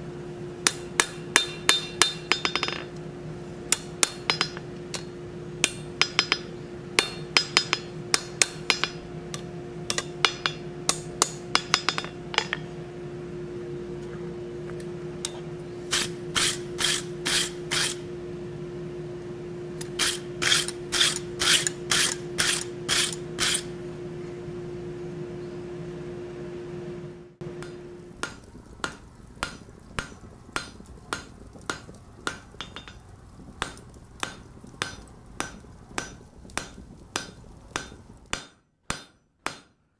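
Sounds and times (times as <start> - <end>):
steady hum: 0.0 - 39.9
hammer blows on hot steel: 0.6 - 2.9, 3.7 - 12.8, 15.2 - 18.1, 19.8 - 23.8, 27.4 - 39.8
wire brush scrubbing steel: 15.9 - 18.0, 19.8 - 23.7.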